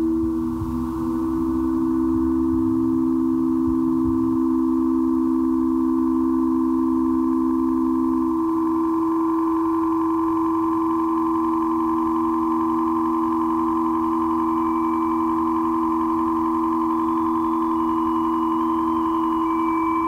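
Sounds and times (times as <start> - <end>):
ambient drone music: 0.0 - 20.0
faint higher tones: 0.0 - 20.0.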